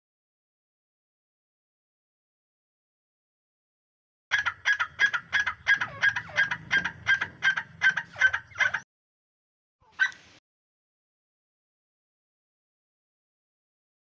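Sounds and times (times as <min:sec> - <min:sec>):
partridge calling: 0:04.3 - 0:08.8.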